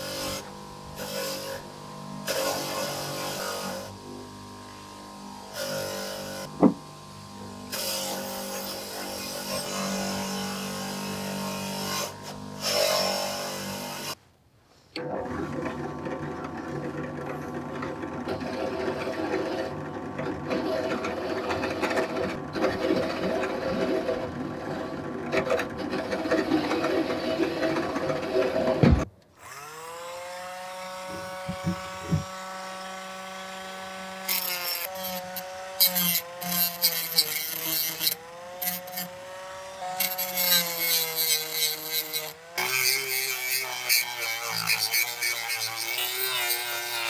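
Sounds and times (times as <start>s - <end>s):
rotary tool whine: 0.0s - 14.2s, 15.0s - 47.0s
drill press motor hum: 15.0s - 30.4s, 31.0s - 43.2s
file rasping on metal: 30.9s - 32.3s, 34.1s - 47.0s
disc grinding metal: 34.2s - 39.2s, 39.8s - 47.0s.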